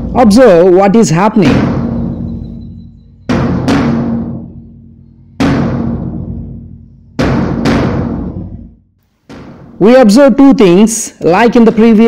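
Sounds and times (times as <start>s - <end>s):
bass drum booming: 1.4s - 9.8s.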